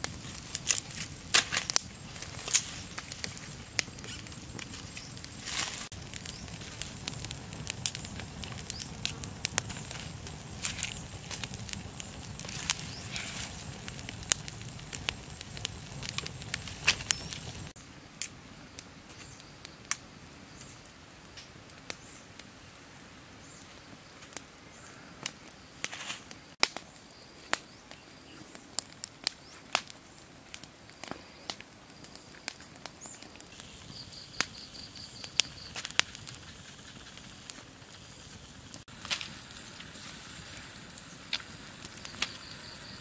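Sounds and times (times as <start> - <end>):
wood fire crackling: 0.0 - 43.0.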